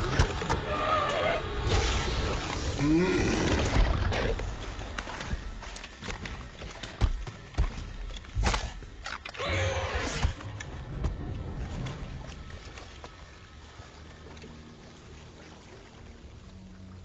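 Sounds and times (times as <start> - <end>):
creature growling: 2.3 - 4.4.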